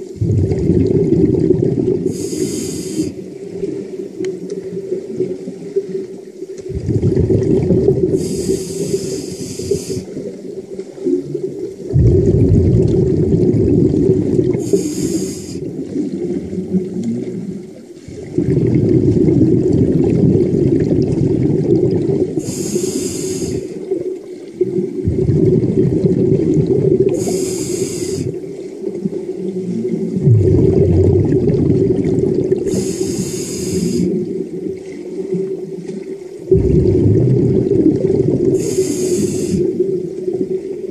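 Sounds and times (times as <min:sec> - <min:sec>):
exhaled bubbles rumbling: 0:00.0 - 0:40.9
regulator inhale hiss: 0:02.0 - 0:03.2, 0:08.1 - 0:10.2, 0:14.5 - 0:15.7, 0:22.4 - 0:23.9, 0:27.0 - 0:28.4, 0:32.6 - 0:34.2, 0:38.6 - 0:39.8.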